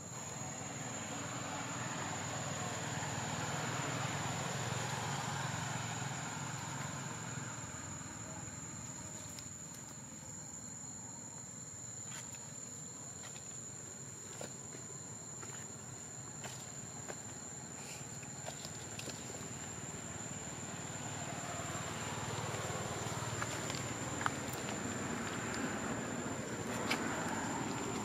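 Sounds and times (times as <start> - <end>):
insect drone: 0.0 - 28.0.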